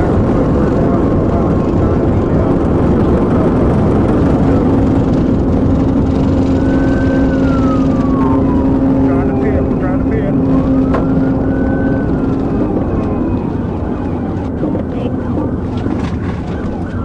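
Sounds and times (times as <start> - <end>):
high tone gliding: 0.0 - 15.7
steady hum: 0.0 - 17.0
wind tyre and engine noise: 0.0 - 17.0.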